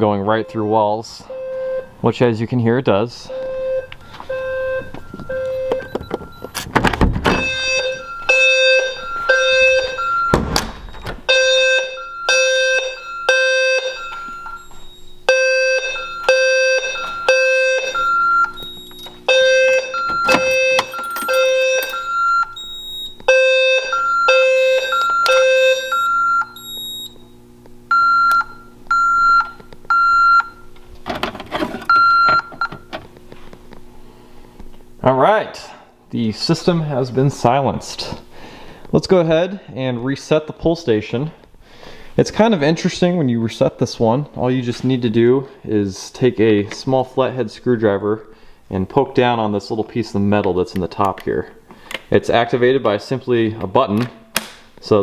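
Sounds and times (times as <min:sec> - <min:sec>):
higher alarm beeps: 0:00.0 - 0:02.0, 0:03.2 - 0:06.6, 0:07.3 - 0:27.3, 0:27.9 - 0:30.7, 0:31.9 - 0:32.8
fire alarm low buzzing tone: 0:00.0 - 0:02.1, 0:03.1 - 0:30.8, 0:31.8 - 0:33.1
steady hum: 0:00.0 - 0:53.5
door thumps: 0:05.9 - 0:07.6, 0:10.3 - 0:11.3.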